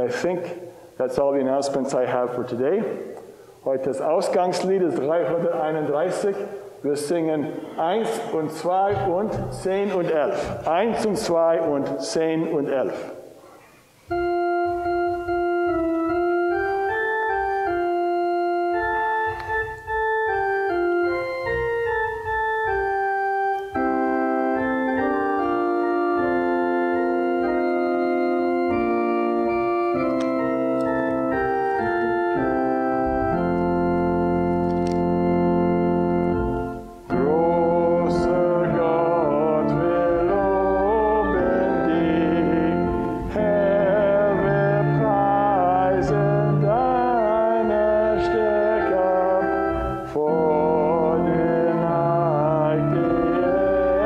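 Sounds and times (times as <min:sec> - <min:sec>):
church organ playing chords: 0:00.0 - 0:13.4, 0:14.0 - 0:54.0
people singing a hymn: 0:37.1 - 0:54.0.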